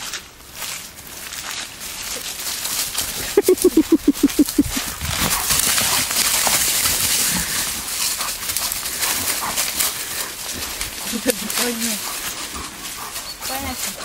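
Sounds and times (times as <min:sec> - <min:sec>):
animals scuffling through dry leaves: 0:00.0 - 0:14.0
short animal calls: 0:03.4 - 0:04.9.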